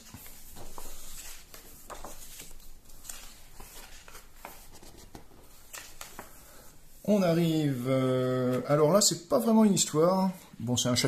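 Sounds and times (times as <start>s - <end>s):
book pages turning: 0.0s - 6.7s.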